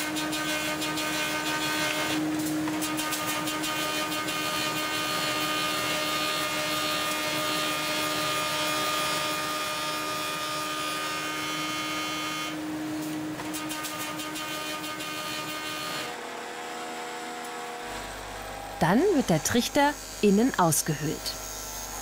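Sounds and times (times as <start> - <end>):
wood lathe humming: 3.5 - 12.6, 14.0 - 22.0.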